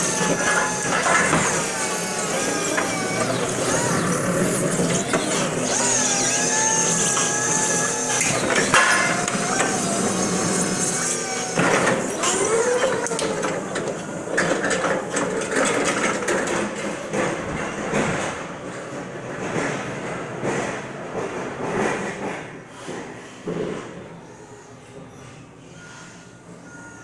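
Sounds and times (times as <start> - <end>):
reach truck electric whine: 0.0 - 17.2.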